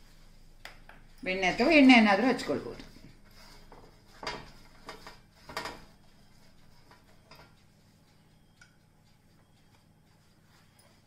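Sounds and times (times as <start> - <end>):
pastry brush swishing on tray: 1.5 - 5.3
faint light ticks: 8.5 - 10.2.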